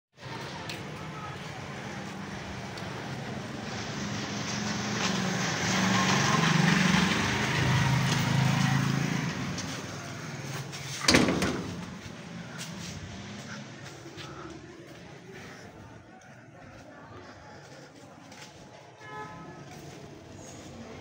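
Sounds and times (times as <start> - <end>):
vehicle engine passing: 1.2 - 16.0.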